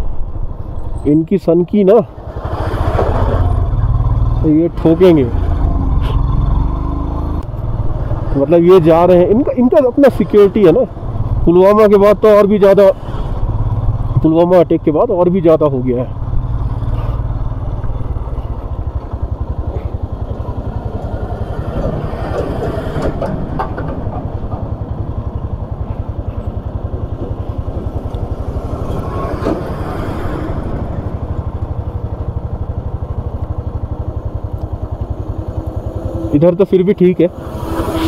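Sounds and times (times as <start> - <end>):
motorcycle engine thumping: 16.8 - 35.2.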